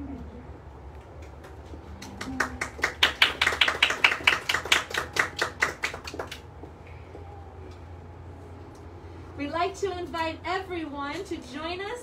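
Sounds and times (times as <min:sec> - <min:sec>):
people clapping: 0:01.0 - 0:06.8.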